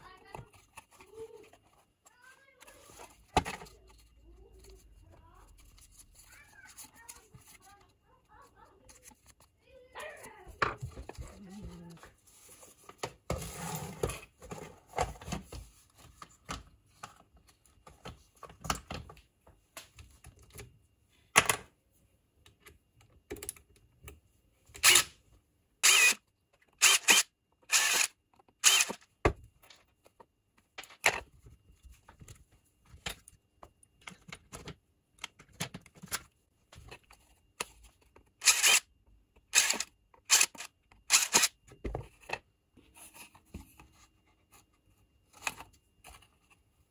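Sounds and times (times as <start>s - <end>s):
impact driver drilling plastic: 24.8s - 25.1s, 25.8s - 26.2s, 26.8s - 29.0s, 38.4s - 38.8s, 39.5s - 41.5s.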